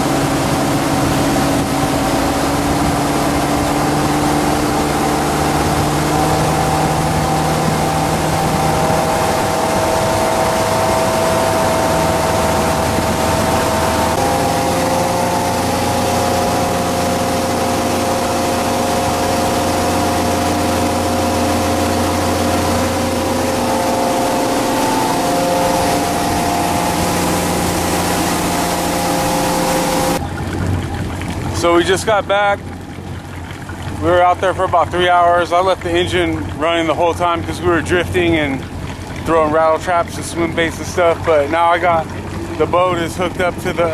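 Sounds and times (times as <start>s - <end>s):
boat engine running: 0.0s - 43.9s
water washing on hull: 0.0s - 43.9s.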